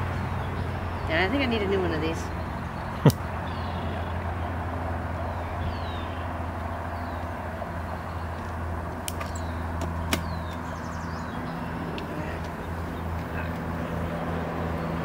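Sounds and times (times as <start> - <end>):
honeybees buzzing: 5.8 - 15.0.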